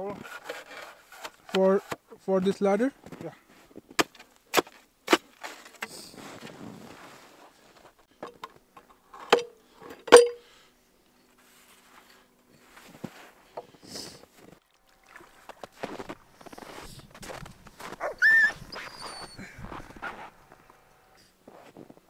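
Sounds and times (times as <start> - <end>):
sharp ringing knocks: 10.1 - 10.5.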